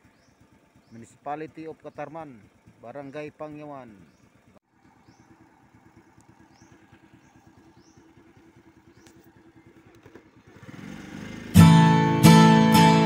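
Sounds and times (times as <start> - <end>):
motorcycle engine idling: 0.0 - 13.0
strummed acoustic guitar music: 11.5 - 13.0.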